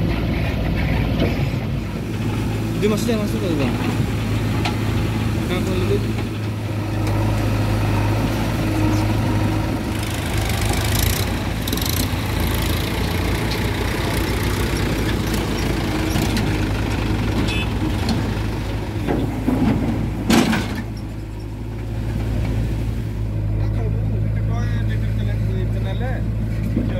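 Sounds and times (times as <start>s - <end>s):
diesel engines running: 0.0s - 26.9s.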